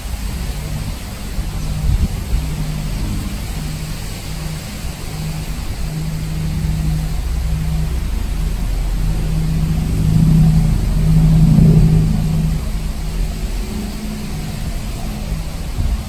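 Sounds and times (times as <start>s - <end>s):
engine humming: 0.0s - 16.0s.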